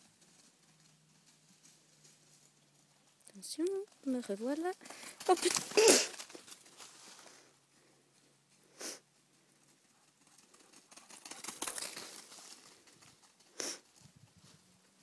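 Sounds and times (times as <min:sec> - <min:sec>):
dry leaves rustling underfoot: 0:00.0 - 0:07.5, 0:11.2 - 0:15.0.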